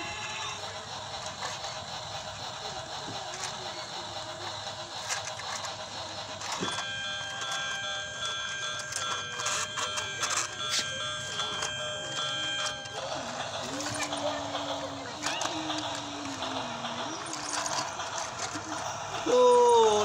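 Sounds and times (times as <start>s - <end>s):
toy train motor whirring: 0.0s - 20.0s.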